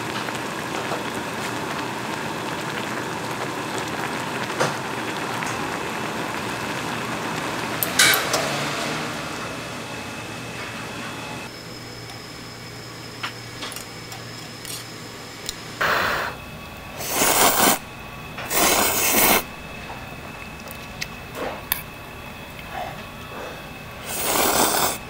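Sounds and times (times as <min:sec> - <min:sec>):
noodles being slurped: 0:17.0 - 0:17.8, 0:18.4 - 0:19.5, 0:24.0 - 0:25.0.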